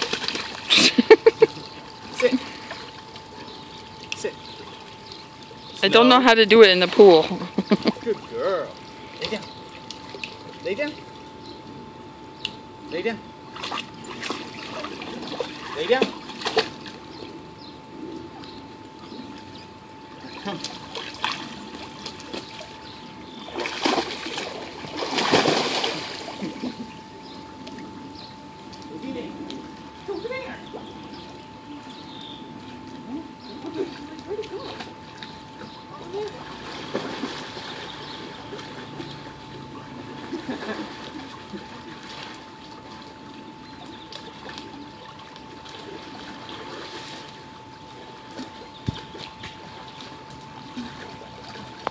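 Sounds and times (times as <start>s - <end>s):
dog splashing into pool water: 0.0s - 3.2s, 13.5s - 17.0s, 23.5s - 26.8s, 36.0s - 39.2s
small splashes: 0.0s - 3.4s, 20.3s - 22.8s, 23.4s - 26.8s, 36.1s - 39.2s, 40.1s - 51.9s
faint high whine: 0.0s - 51.9s
pool water splashing and lapping: 0.0s - 51.9s.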